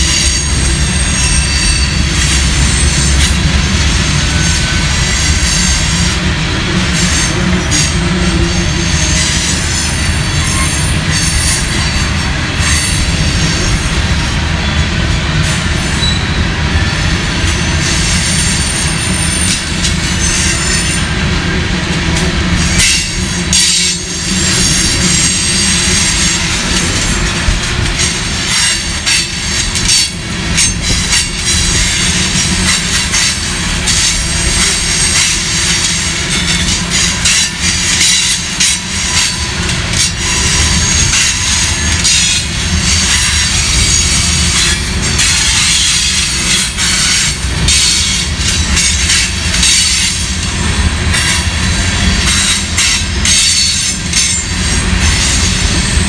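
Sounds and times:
high-pitched wheel squeal: 0.0s - 3.4s, 16.0s - 16.4s
train wheels rumbling on rails: 0.0s - 56.0s
clacks over rail joints: 21.8s - 50.5s.

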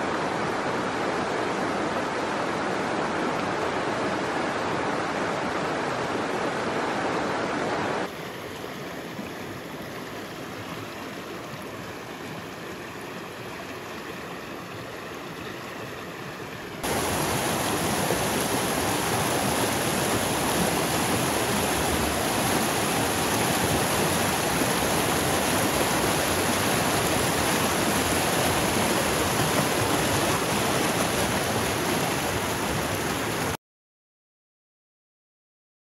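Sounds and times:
water rushing in rocky stream: 0.0s - 33.6s.

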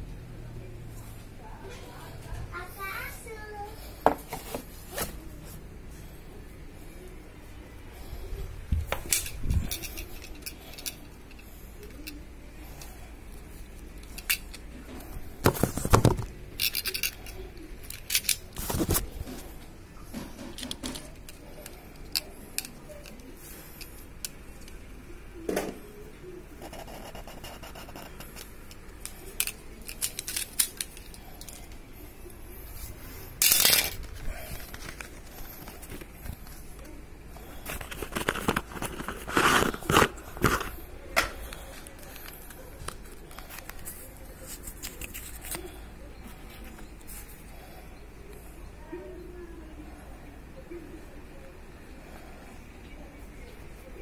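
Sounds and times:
phone handling scrapes and clicks: 37.6s - 40.8s.

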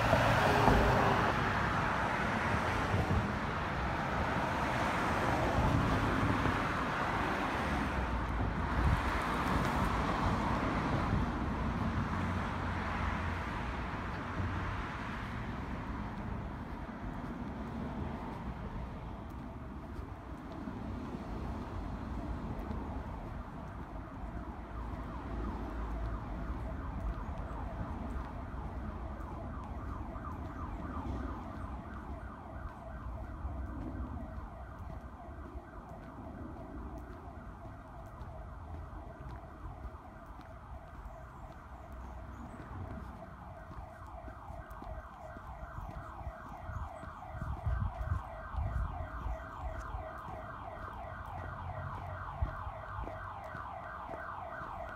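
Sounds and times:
electronic siren sweeping: 21.8s - 54.9s.

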